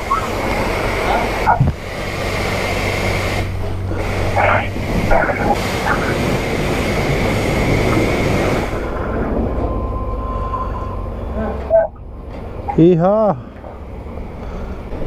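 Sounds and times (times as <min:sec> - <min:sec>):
pressure washer spraying water: 0:00.0 - 0:09.6
low pump hum: 0:00.0 - 0:15.0.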